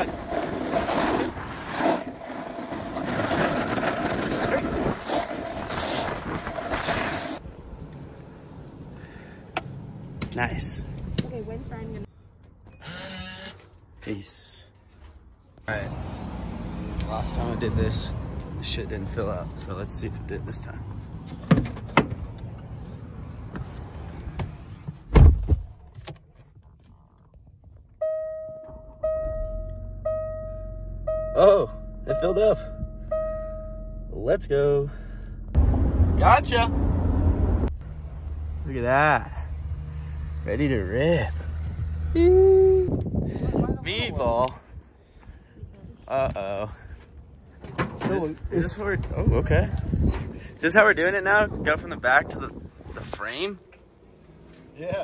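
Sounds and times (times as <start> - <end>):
snowboard scraping on snow: 0.0 - 7.4
car door slamming: 25.1 - 25.8
dashboard warning chime: 28.0 - 34.3
wind buffeting microphone: 42.5 - 46.0, 48.4 - 53.4.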